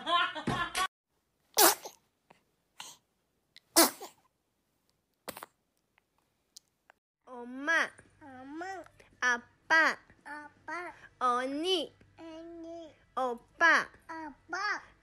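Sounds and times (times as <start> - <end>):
person sneezing: 1.6 - 2.0, 3.7 - 4.2.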